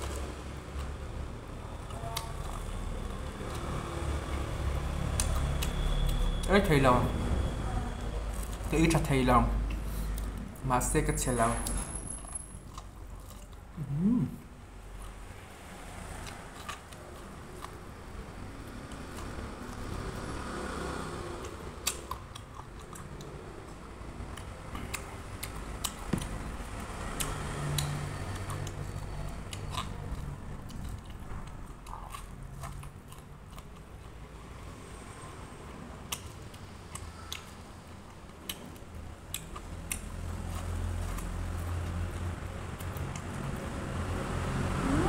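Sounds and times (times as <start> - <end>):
corn on the cob being chewed: 0.0 - 6.5, 11.6 - 35.1, 35.9 - 44.8.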